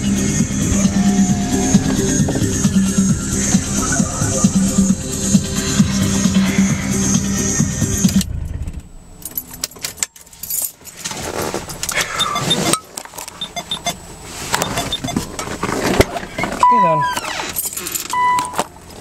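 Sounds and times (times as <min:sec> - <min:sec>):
music from car stereo: 0:00.0 - 0:08.4, 0:18.1 - 0:18.7
keys jangling and clicking: 0:09.2 - 0:11.0, 0:17.5 - 0:18.8.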